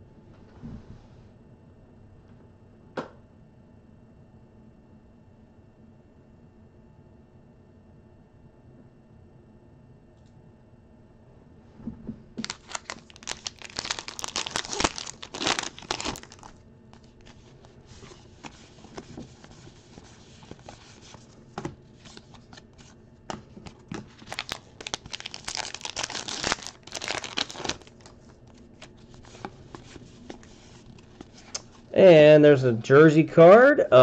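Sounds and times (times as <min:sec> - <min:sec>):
wrappers tearing and crackling: 0:12.4 - 0:21.1, 0:23.7 - 0:31.8
card handling: 0:12.4 - 0:31.9.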